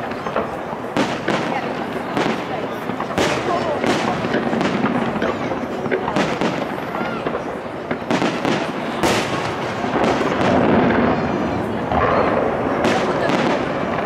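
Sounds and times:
rumble and echo: 0:00.0 - 0:14.0.

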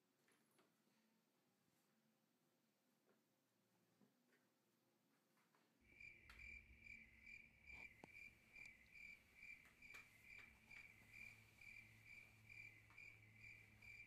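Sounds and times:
cricket chirping: 0:05.8 - 0:14.0.

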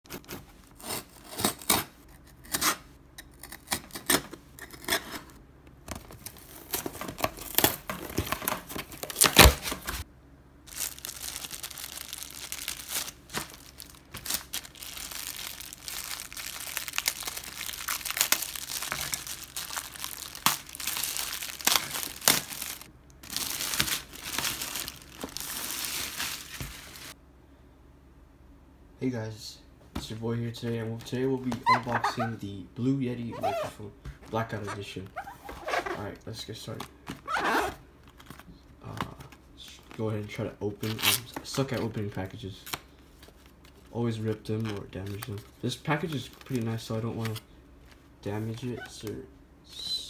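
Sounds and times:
cardboard box ripping: 0:06.4 - 0:10.0
plastic bag crinkling: 0:10.7 - 0:27.2.

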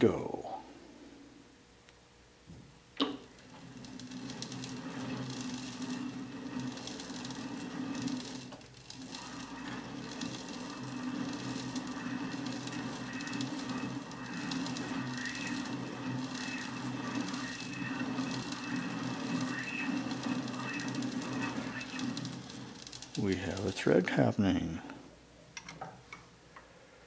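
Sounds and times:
lathe motor hum and whine: 0:03.1 - 0:24.1.

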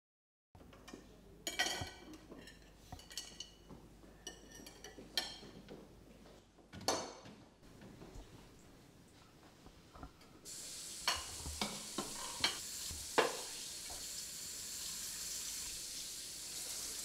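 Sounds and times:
cutlery and plates clinking: 0:00.6 - 0:05.7, 0:11.0 - 0:12.6.

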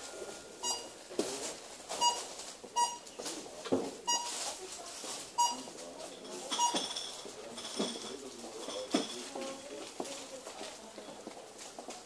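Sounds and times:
barcode scanner beeping: 0:00.6 - 0:01.0, 0:02.0 - 0:03.2, 0:04.0 - 0:04.4, 0:05.3 - 0:05.7, 0:06.6 - 0:07.0.

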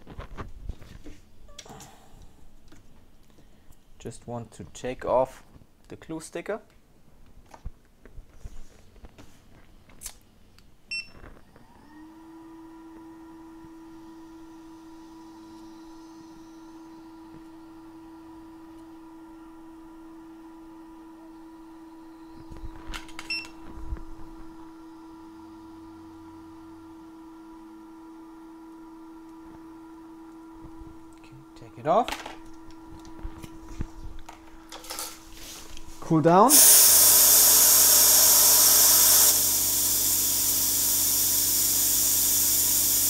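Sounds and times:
hot air station fan whine: 0:12.4 - 0:43.0.

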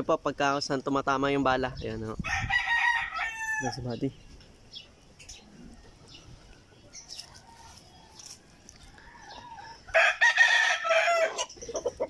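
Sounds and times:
rooster crowing: 0:02.2 - 0:03.8, 0:05.6 - 0:11.5.

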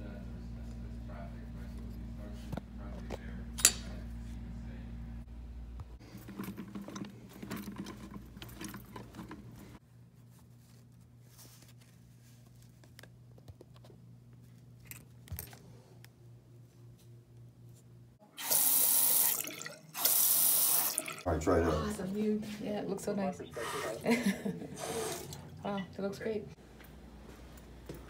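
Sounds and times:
water running into sink: 0:18.4 - 0:21.3.

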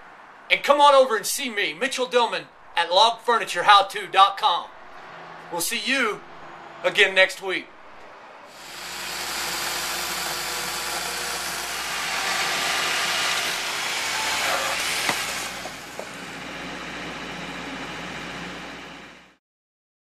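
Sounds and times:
circular saw cutting wood: 0:08.5 - 0:19.4.

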